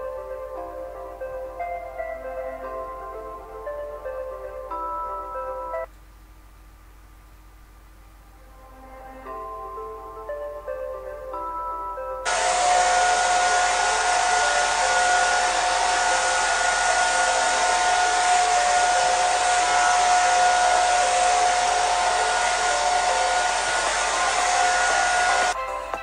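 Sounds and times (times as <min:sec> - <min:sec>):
hair dryer running: 0:12.3 - 0:25.6.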